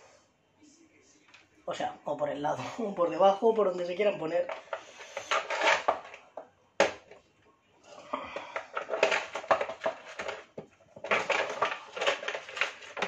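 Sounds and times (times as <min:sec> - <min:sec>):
spatula scraping foil tray: 0:04.7 - 0:06.2.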